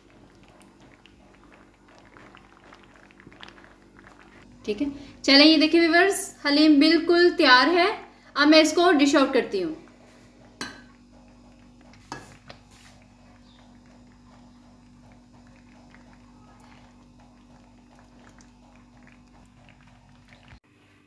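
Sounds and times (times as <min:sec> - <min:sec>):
steady low hum: 0:00.0 - 0:21.0
spoon knocking metal pot: 0:10.6 - 0:10.9.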